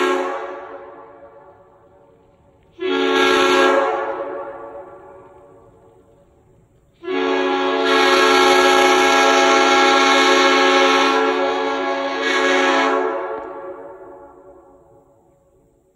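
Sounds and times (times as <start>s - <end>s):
air horn chord blast: 0.0s - 1.2s, 2.8s - 4.8s, 7.0s - 13.8s.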